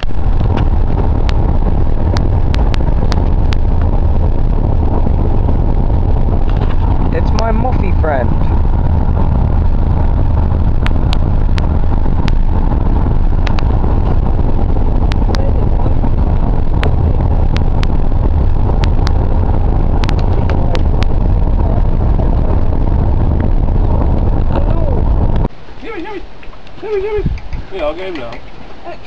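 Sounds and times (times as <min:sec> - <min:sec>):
car cabin road rumble: 0:00.0 - 0:29.0.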